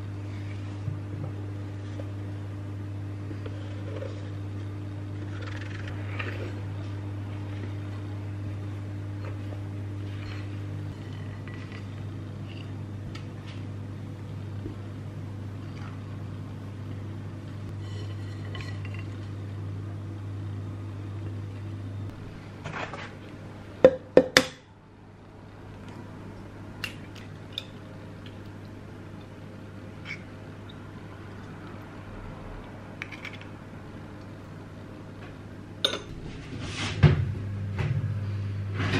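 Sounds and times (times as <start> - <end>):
low steady hum: 0.0 - 38.9
glass dishware clinking: 35.8 - 36.1.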